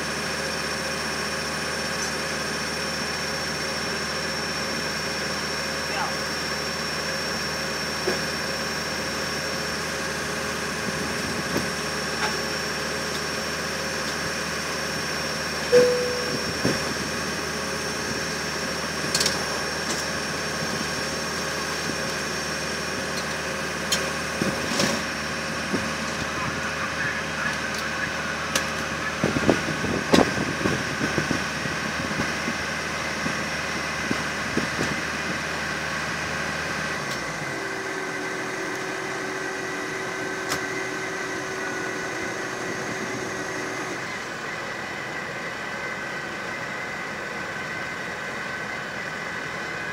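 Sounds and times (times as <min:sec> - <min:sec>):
thin high whine: 0:15.7 - 0:17.2
airliner cabin hum: 0:15.7 - 0:17.3
muffled voices: 0:26.1 - 0:29.7.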